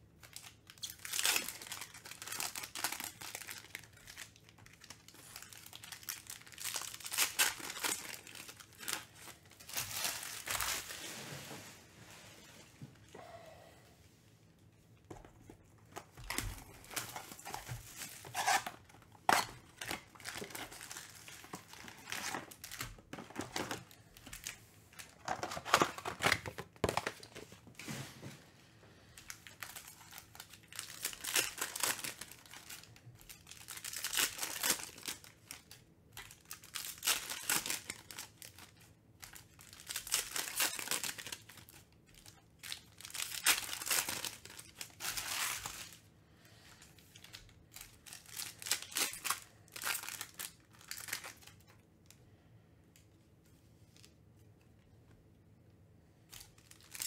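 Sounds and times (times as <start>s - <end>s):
foil packs crinkling and tearing: 0.2s - 11.2s, 16.0s - 27.5s, 29.0s - 46.1s, 46.8s - 51.7s, 56.3s - 57.0s.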